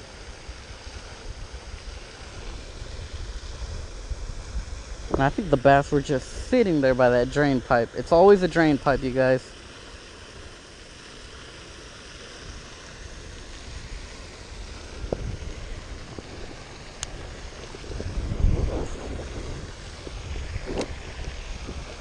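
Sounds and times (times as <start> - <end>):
steady outdoor hiss: 0.0 - 22.0
wind buffeting microphone: 13.3 - 22.0.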